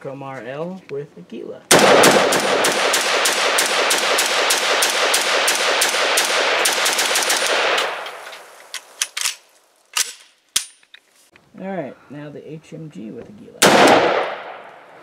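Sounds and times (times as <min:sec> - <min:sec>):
rifle firing rapid shots: 0:01.7 - 0:08.2, 0:13.6 - 0:14.6
sharp rifle clicks: 0:01.7 - 0:11.0, 0:13.6 - 0:14.8.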